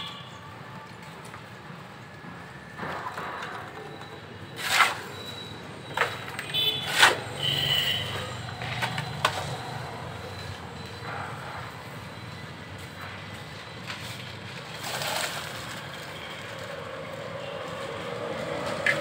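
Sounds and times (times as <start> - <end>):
shovel scraping concrete floor: 4.5 - 5.4, 6.0 - 9.4, 14.0 - 15.8.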